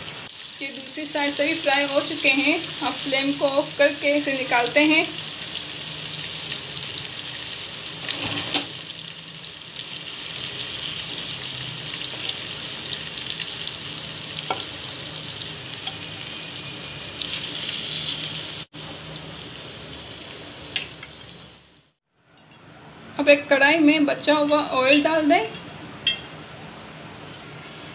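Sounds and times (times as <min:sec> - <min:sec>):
chicken sizzling in oil: 0:00.0 - 0:22.0.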